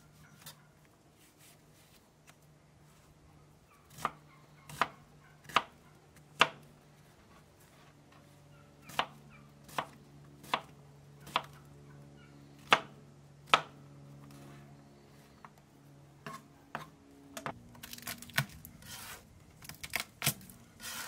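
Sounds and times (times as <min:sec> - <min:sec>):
knife chopping on plastic board: 0:08.9 - 0:09.1, 0:13.5 - 0:13.7.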